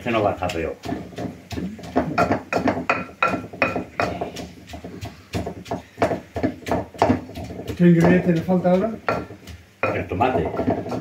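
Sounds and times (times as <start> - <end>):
wooden pestle pounding in bowl: 0.0 - 11.0.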